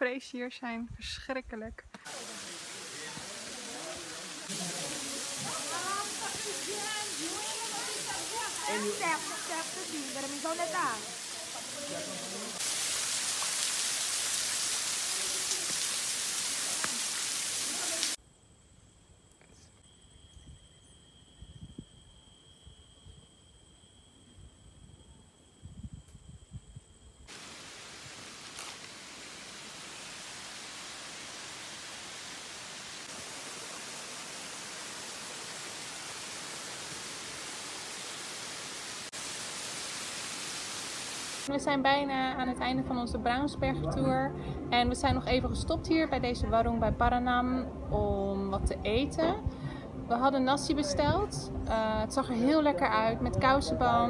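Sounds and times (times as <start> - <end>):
small waterfall splashing onto rock: 2.0 - 18.2
insects buzzing high tones: 18.2 - 27.5.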